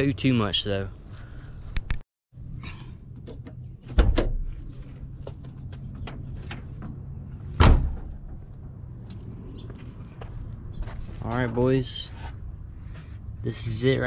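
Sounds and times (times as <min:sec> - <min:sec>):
car door clunking shut: 0:07.6 - 0:08.4
footsteps: 0:08.4 - 0:13.2.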